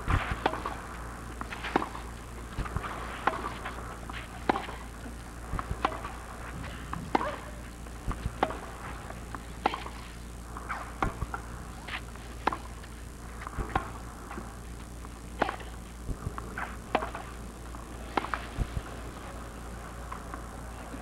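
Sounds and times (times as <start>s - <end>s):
rackets striking tennis ball: 0.2s - 0.8s, 1.4s - 14.5s, 15.4s - 15.8s, 16.6s - 17.4s, 18.0s - 18.9s.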